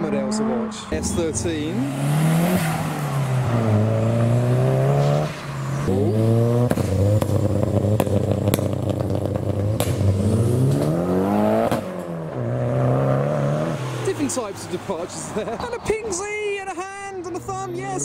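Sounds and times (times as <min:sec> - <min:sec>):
exhaust cracks: 0:00.0 - 0:14.7
sports car accelerating: 0:00.0 - 0:15.6.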